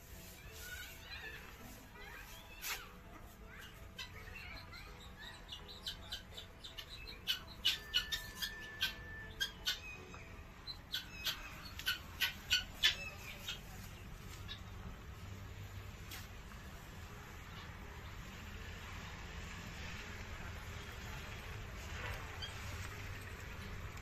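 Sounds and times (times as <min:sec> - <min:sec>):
animal chirps and squawks: 0:00.4 - 0:13.8.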